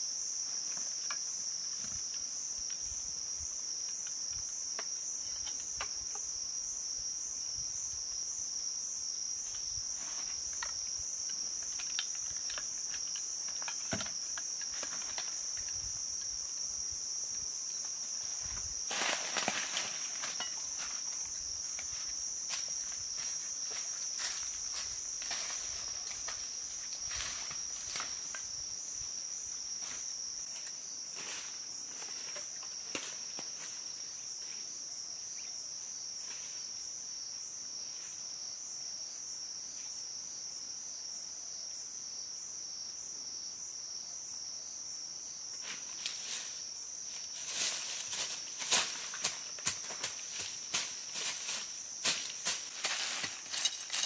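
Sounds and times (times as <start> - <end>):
high-pitched insect chorus: 0.0 - 54.0
footsteps in dry leaf litter: 18.8 - 21.2, 47.2 - 54.0.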